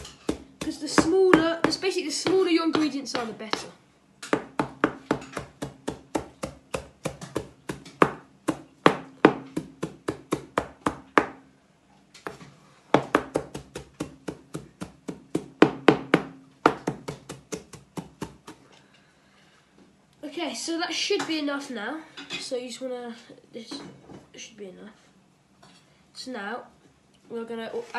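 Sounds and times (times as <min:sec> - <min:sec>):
knife chopping on plastic cutting board: 0:00.0 - 0:11.4, 0:12.2 - 0:18.6.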